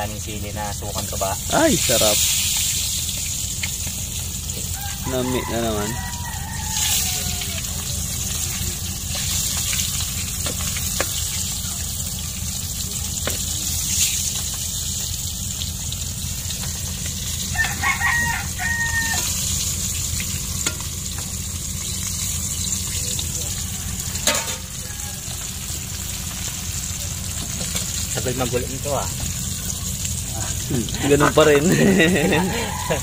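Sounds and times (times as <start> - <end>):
fish sizzling in oil: 0.0 - 33.0
rooster crowing: 4.5 - 8.1, 17.3 - 19.7, 23.0 - 26.0, 31.6 - 33.0.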